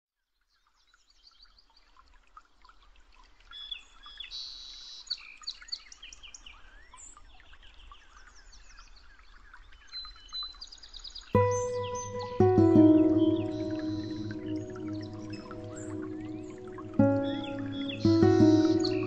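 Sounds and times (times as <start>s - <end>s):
songbirds chirping and singing: 11.4s - 19.0s.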